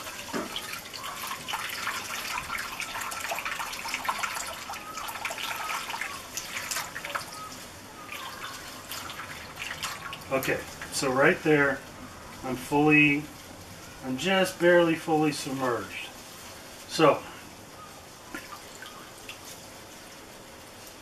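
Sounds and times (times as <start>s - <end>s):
water trickling and dripping: 0.0s - 11.1s, 18.3s - 20.2s.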